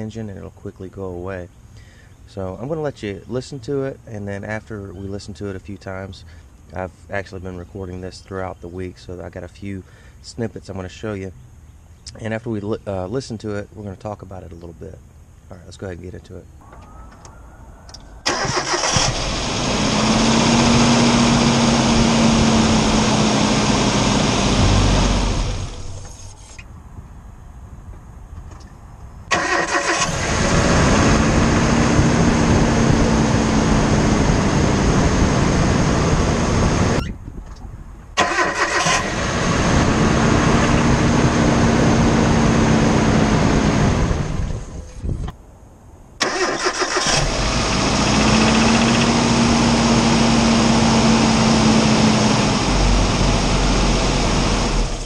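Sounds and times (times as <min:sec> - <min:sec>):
car engine cranking: 0:17.9 - 0:26.6, 0:29.3 - 0:32.2, 0:38.2 - 0:42.8, 0:46.2 - 0:55.0.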